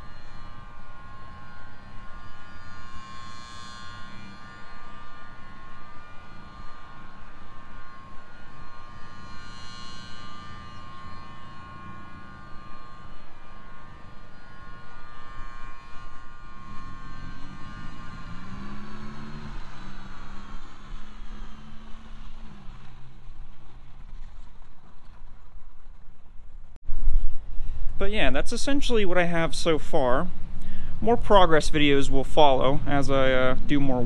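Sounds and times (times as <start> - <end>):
distant siren wailing: 0.0 - 26.8.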